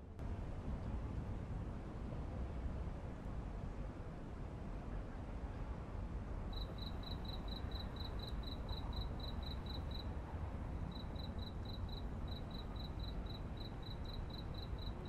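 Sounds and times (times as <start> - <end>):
cricket chirping: 6.5 - 10.2, 10.9 - 15.0.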